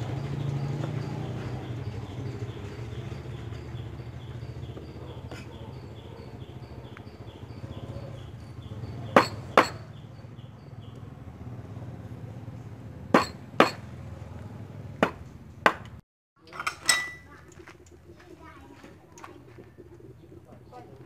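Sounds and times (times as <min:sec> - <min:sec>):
knife chopping on wooden board: 0:09.2 - 0:09.8, 0:13.2 - 0:13.8, 0:15.0 - 0:16.0.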